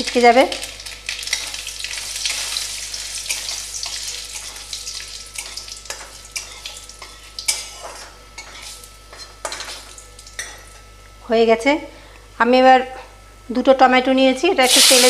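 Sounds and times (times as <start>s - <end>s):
seeds sizzling in hot oil: 0.0s - 8.9s, 14.6s - 15.0s.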